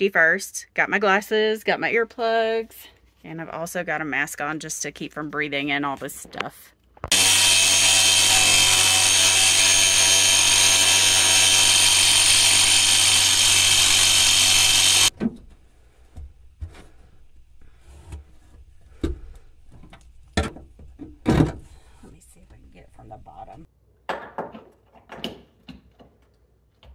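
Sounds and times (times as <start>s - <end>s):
angle grinder cutting metal: 7.1s - 15.1s.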